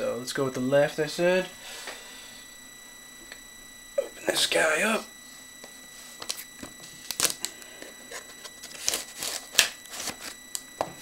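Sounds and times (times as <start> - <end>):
computer fan whine: 0.0 - 11.0
shrink wrap crinkling and tearing: 6.2 - 10.6.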